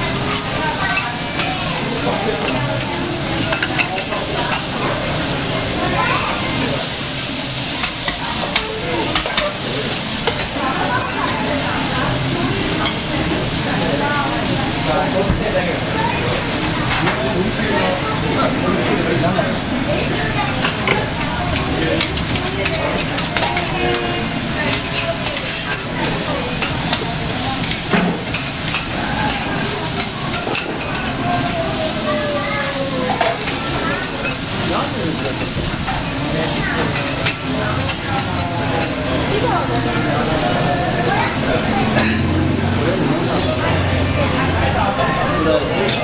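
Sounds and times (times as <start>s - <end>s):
clams sizzling on a griddle: 6.0s - 13.8s, 22.0s - 39.0s.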